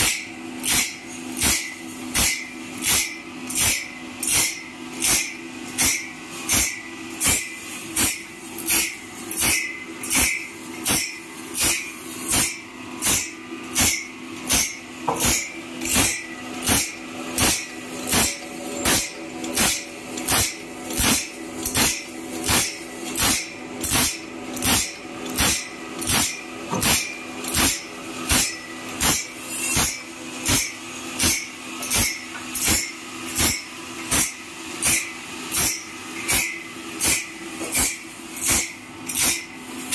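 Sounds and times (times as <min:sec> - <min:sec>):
grinding wheel rasping saw teeth: 0:00.6 - 0:39.5
motor hum: 0:06.5 - 0:30.5.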